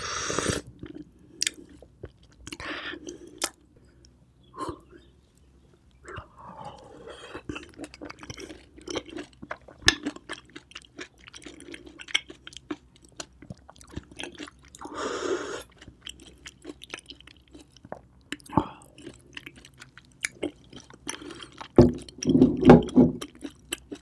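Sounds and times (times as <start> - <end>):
wet chewing: 6.0 - 15.0, 15.6 - 24.0.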